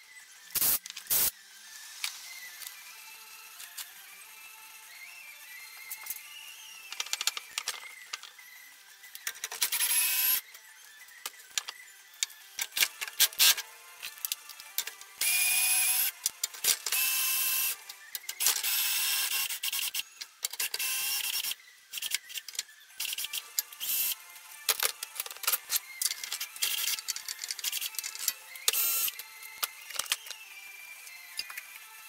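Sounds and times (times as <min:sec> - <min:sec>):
electric power tool whirring: 0:00.3 - 0:32.0
metal parts clicking and knocking: 0:06.9 - 0:08.4, 0:09.1 - 0:10.0, 0:11.2 - 0:15.2, 0:16.0 - 0:17.1, 0:18.1 - 0:18.8, 0:22.0 - 0:24.0, 0:24.6 - 0:30.4, 0:31.3 - 0:31.8.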